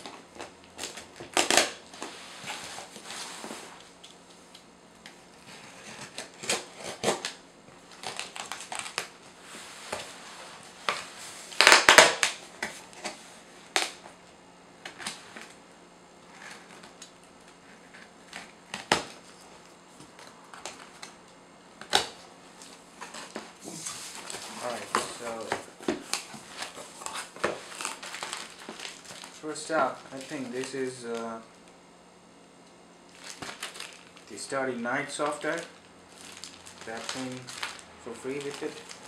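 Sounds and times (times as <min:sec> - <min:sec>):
packing tape slit and pulled: 0:00.0 - 0:02.6, 0:05.8 - 0:09.2, 0:10.8 - 0:14.0.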